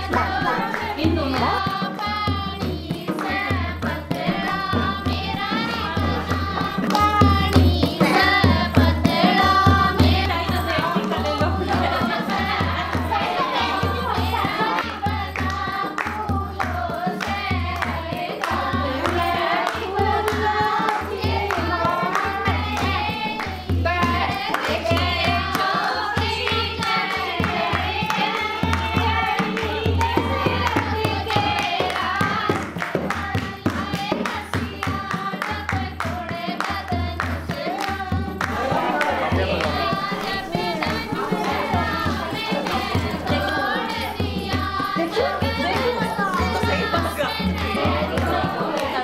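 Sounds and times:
person singing: 0.0s - 2.0s, 38.4s - 49.0s.

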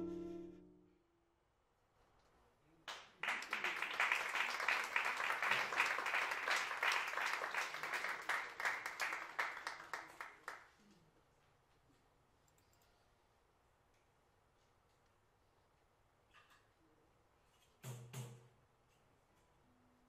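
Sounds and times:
audience applauding: 2.9s - 10.7s.

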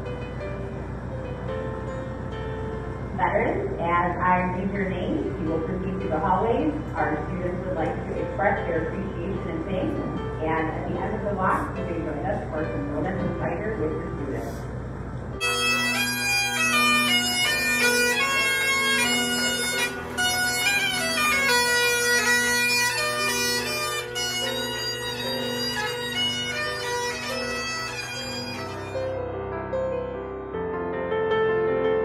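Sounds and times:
bagpipe melody with drones: 15.4s - 29.3s.

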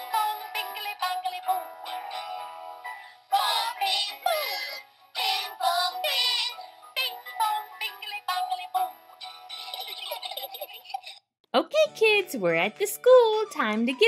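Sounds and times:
synthetic voice singing children's song: 0.0s - 2.4s, 3.3s - 9.0s.

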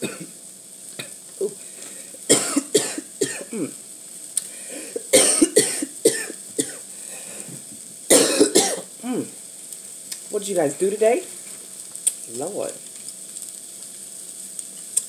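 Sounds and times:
woman coughing: 2.3s - 3.7s, 5.1s - 6.8s, 8.1s - 9.2s.

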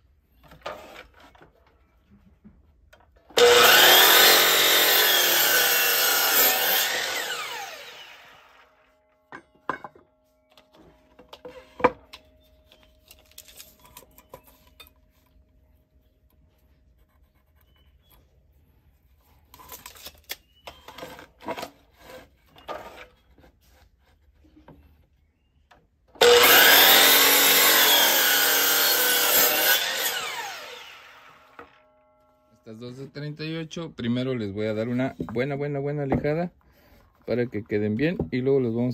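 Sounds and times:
miter saw cutting wood: 3.4s - 8.9s, 26.2s - 31.8s.

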